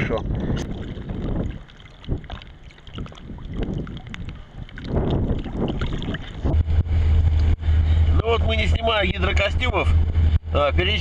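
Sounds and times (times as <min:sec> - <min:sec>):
water slapping and splashing: 0:00.0 - 0:07.6
wind buffeting microphone: 0:00.0 - 0:11.0
car engine hum: 0:04.2 - 0:11.0.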